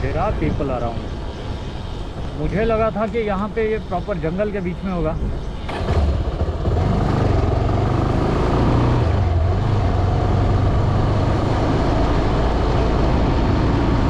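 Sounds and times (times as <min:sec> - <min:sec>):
motorcycle engine running: 0:05.7 - 0:12.9.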